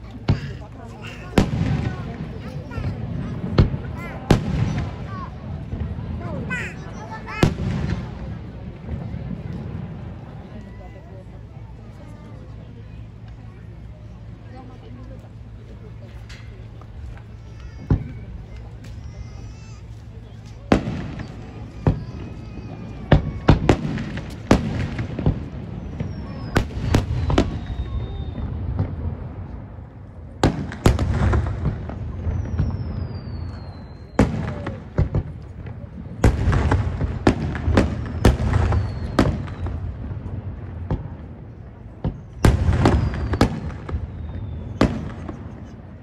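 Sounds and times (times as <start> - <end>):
falling firework whistles: 20.2 - 29.0, 30.8 - 35.3, 36.2 - 40.0, 42.0 - 45.8.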